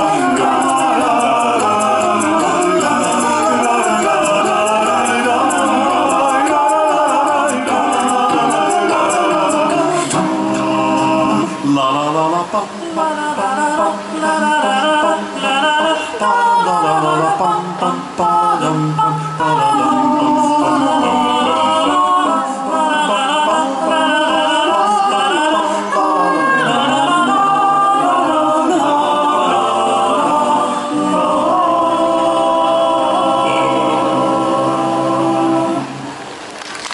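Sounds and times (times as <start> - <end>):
male a cappella ensemble singing: 0.0 - 36.4.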